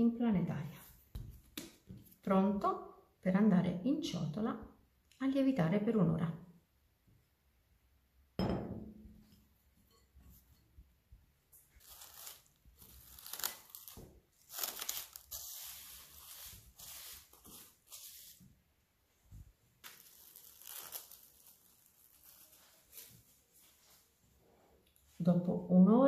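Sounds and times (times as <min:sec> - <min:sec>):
cling film crinkling: 0:11.7 - 0:18.3, 0:19.8 - 0:23.4.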